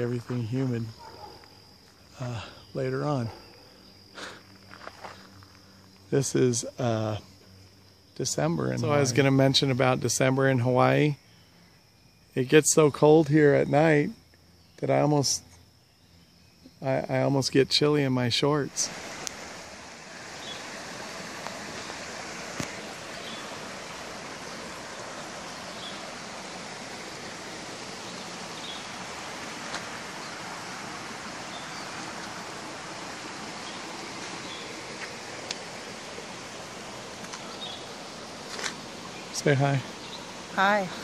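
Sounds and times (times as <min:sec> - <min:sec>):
steady outdoor rushing noise: 0:18.5 - 0:41.0.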